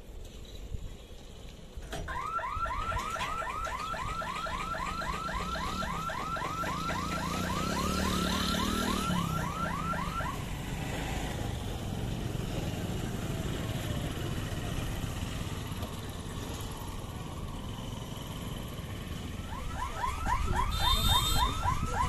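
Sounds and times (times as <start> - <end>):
rising electronic warning chirps: 3.0 - 10.2.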